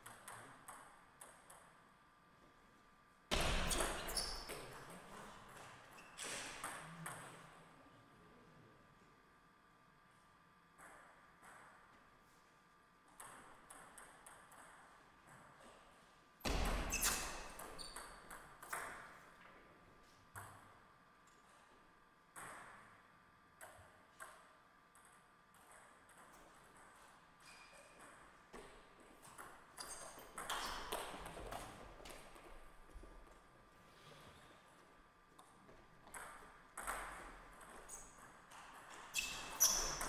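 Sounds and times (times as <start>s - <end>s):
table tennis ball on bats and table: 0.0s - 2.0s, 3.3s - 7.6s, 10.7s - 12.1s, 13.1s - 15.8s, 16.4s - 19.6s, 20.3s - 21.4s, 22.3s - 32.6s, 35.4s - 40.0s.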